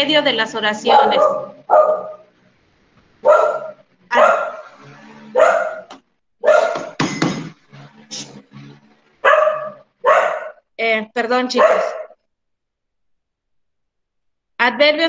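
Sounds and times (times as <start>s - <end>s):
dog barking: 0.8s - 2.3s, 3.2s - 7.0s, 9.2s - 10.6s, 11.5s - 12.2s.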